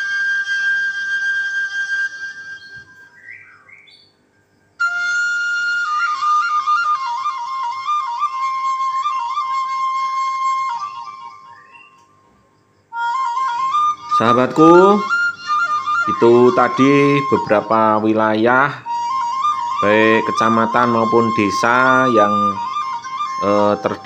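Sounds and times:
solo flute melody: 0.0s - 4.0s, 4.8s - 12.2s, 12.9s - 24.0s.

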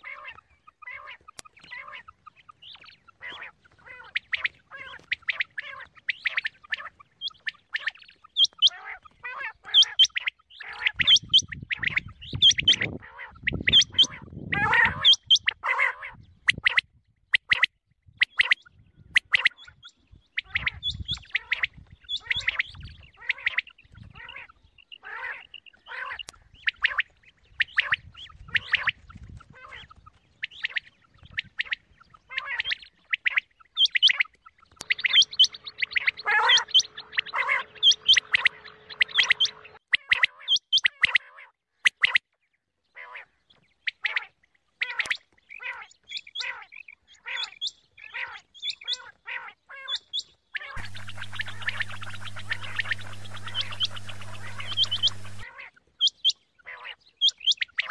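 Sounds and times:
quail chirping: 0.0s - 42.2s, 43.0s - 57.9s
low rumbling noise: 50.8s - 55.4s.

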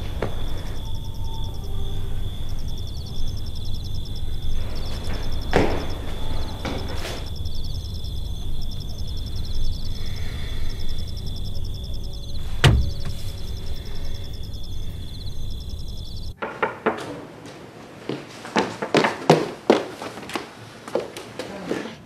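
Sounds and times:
high even chirring: 7.3s - 16.4s
sharp knock: 12.6s - 13.3s.

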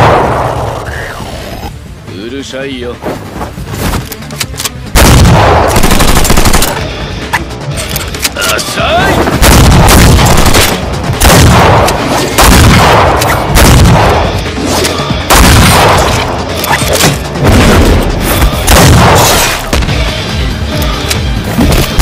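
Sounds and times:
loud gunshots with booming echo: 0.0s - 0.8s, 4.9s - 6.8s, 9.2s - 14.4s, 15.2s - 16.4s, 17.3s - 20.1s.

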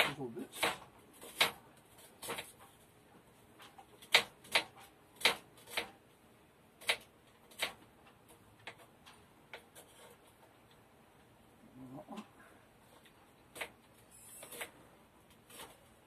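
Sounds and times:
knife chopping on cutting board: 4.0s - 5.9s.

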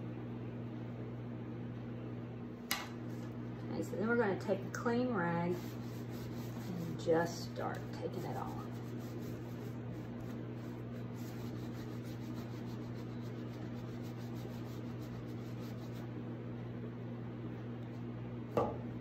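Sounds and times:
low electrical hum: 0.0s - 19.0s
cloth rag rubbing: 5.5s - 16.1s.

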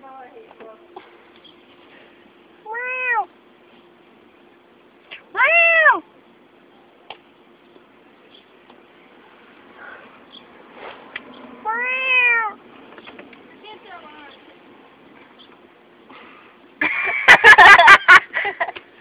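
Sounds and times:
cat meowing: 2.7s - 3.3s, 5.4s - 6.0s, 11.6s - 12.6s.

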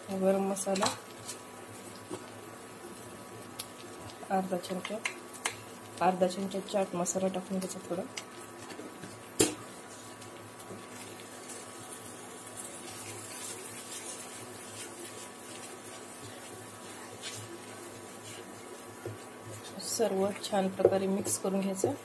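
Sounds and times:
spatula scraping frying pan: 11.4s - 20.6s
spatula knocking pan: 20.4s - 22.0s.

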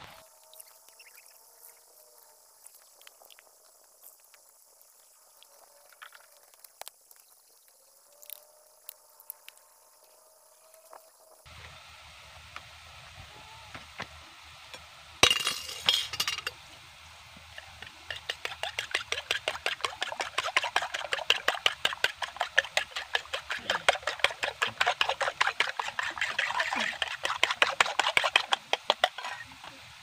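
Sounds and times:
fork beating eggs in bowl: 17.6s - 29.6s.

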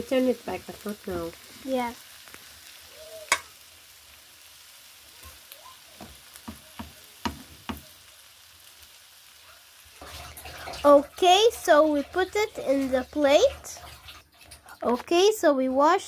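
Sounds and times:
food sizzling in a frying pan: 0.0s - 16.0s
wooden spatula knocking on pan: 6.0s - 8.0s.

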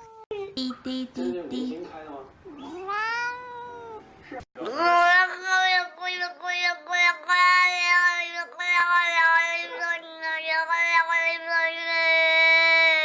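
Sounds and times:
cat meowing: 2.5s - 4.1s.

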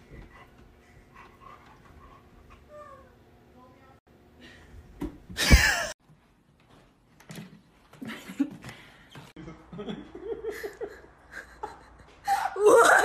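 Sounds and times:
low steady room hum: 0.0s - 7.2s.

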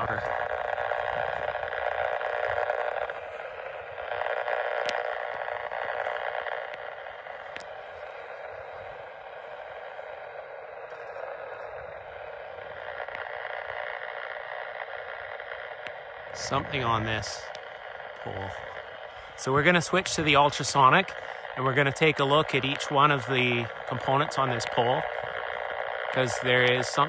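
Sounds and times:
radio static noise: 0.0s - 27.0s.

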